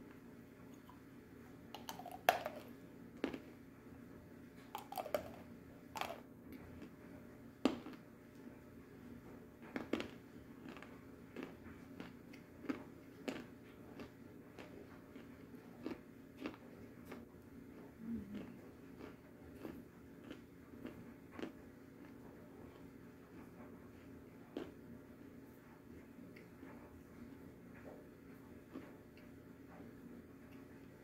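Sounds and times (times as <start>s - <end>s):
person chewing with wet clicks: 1.8s - 3.6s, 4.7s - 5.4s, 6.0s - 7.0s, 7.6s - 8.0s, 9.7s - 24.8s, 28.6s - 29.3s.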